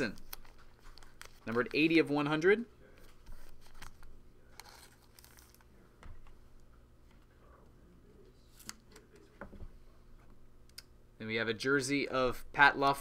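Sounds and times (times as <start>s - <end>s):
trading cards rustling: 0.0s - 2.2s, 2.8s - 5.7s
soft clicks of cards: 8.5s - 9.3s.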